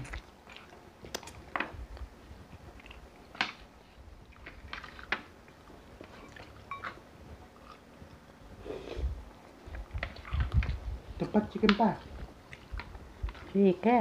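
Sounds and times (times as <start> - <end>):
chewing and mouth smacks: 0.0 - 3.7, 7.6 - 8.2, 8.9 - 10.8, 12.2 - 13.5.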